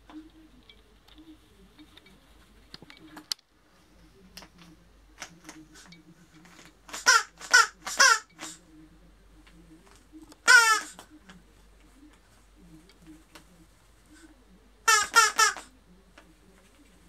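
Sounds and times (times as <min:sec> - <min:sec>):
faint clicks and rustles: 0:00.0 - 0:07.0, 0:08.5 - 0:14.7, 0:15.9 - 0:17.0
macaw chick squawking: 0:10.4 - 0:11.0, 0:14.9 - 0:15.7.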